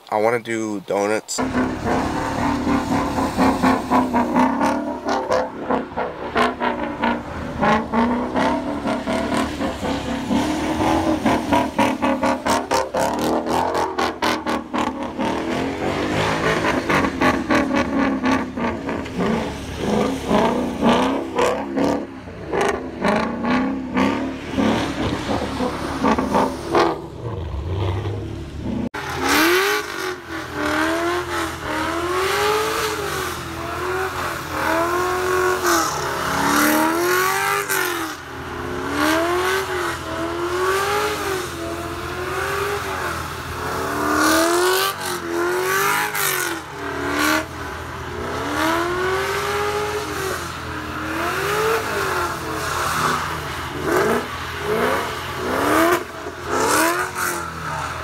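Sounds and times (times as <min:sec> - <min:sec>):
tyres spinning on wet pavement: 0:01.4 - 0:32.1
car engine revving: 0:01.4 - 0:58.0.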